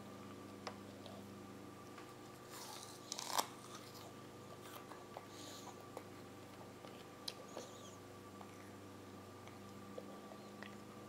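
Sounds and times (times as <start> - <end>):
child chewing: 2.0 - 8.8
apple crunch: 2.5 - 5.0.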